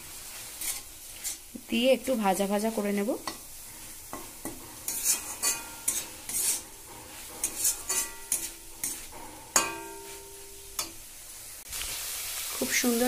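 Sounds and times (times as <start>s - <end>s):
low sizzle of frying: 0.0s - 13.0s
spatula scraping metal pan: 0.3s - 1.6s, 3.2s - 11.0s
spatula striking pan with ring: 4.1s - 11.0s.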